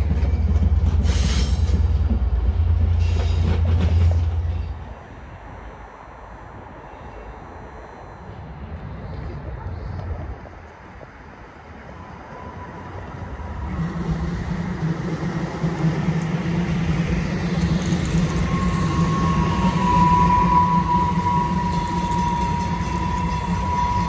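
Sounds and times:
light rail train passing: 0.0s - 24.0s
high steady tone: 17.6s - 24.0s.

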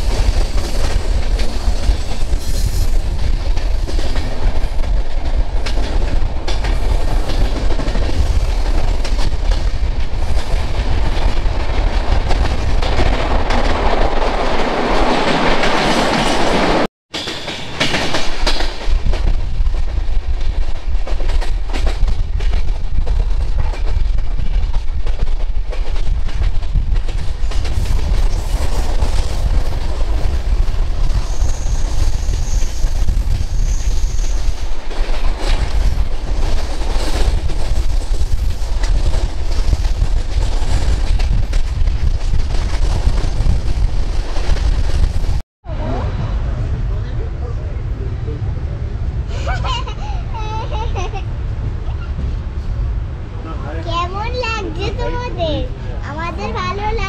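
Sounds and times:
train wheels clattering on rails: 0.0s - 45.4s.

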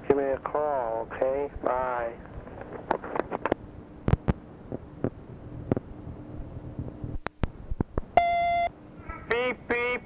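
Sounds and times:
cassette tape hiss: 0.0s - 8.7s
faint hum: 0.0s - 10.0s
answering machine beep: 8.2s - 8.7s.

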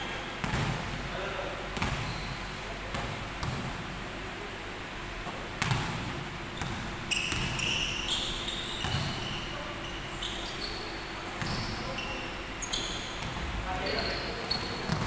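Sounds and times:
basketball bouncing on court: 0.4s - 1.0s, 1.8s - 3.8s, 5.6s - 9.4s, 11.4s - 12.0s, 12.6s - 13.6s, 14.5s - 15.0s
sneakers squeaking on court: 1.8s - 3.6s, 5.6s - 15.0s.

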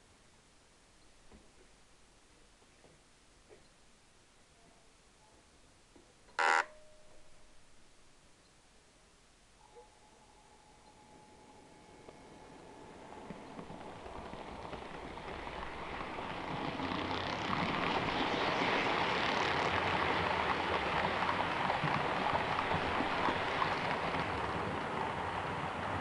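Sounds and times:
model train wheels rolling on track: 11.1s - 26.0s.

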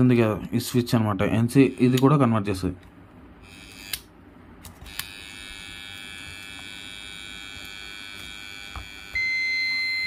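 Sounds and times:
multimeter continuity buzzer tone: 3.4s - 4.1s, 4.8s - 10.0s.

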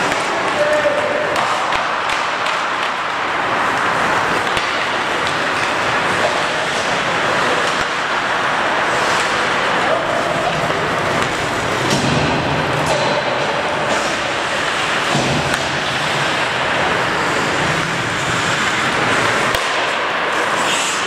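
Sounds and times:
hockey sticks clacking on puck: 0.0s - 21.0s
ice hockey game noise: 0.0s - 21.0s.

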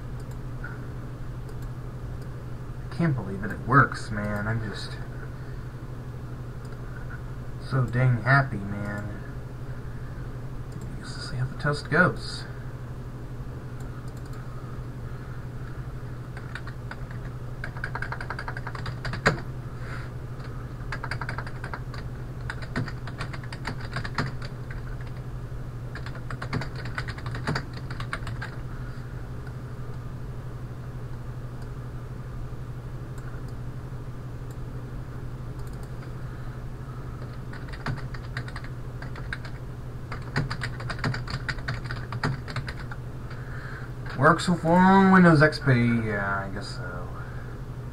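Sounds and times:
steady low hum: 0.0s - 47.9s
typing on computer keyboard: 16.4s - 19.4s, 20.4s - 25.2s, 25.9s - 28.6s, 37.2s - 43.0s.

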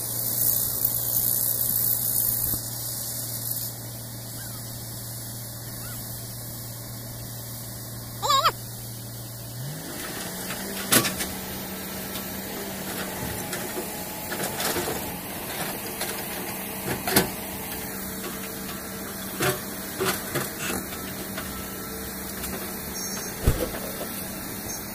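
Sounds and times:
excavator diesel engine revving: 7.4s - 24.9s.

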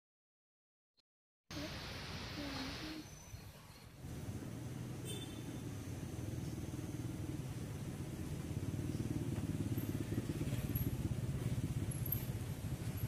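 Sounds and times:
car engine and driving noise: 4.0s - 13.0s.

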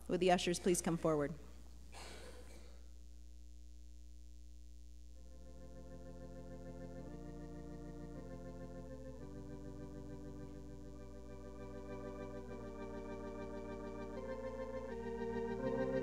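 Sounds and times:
organ playing slow chords: 5.2s - 16.0s.

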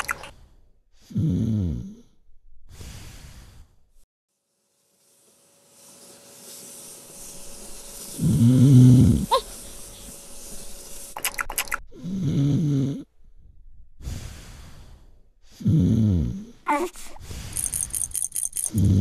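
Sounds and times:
cartoon snoring: 1.0s - 2.2s, 8.0s - 9.6s, 11.9s - 13.1s, 15.5s - 17.5s, 18.7s - 19.0s.

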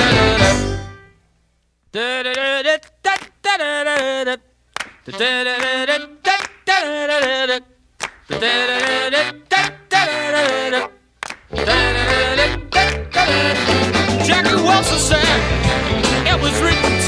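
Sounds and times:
sharp clap-like hits: 3.1s - 3.4s, 4.7s - 5.7s, 6.3s - 7.4s, 8.0s - 9.0s, 11.2s - 11.5s.

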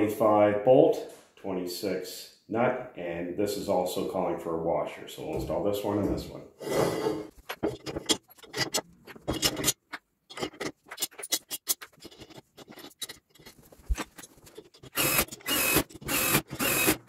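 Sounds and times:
bolts and nuts clinking: 7.4s - 16.7s
cordless drill bursts: 15.0s - 17.0s.

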